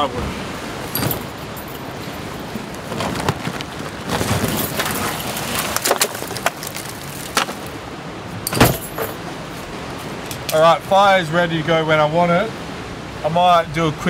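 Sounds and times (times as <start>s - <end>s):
sticks clattering onto rock: 4.3s - 7.7s.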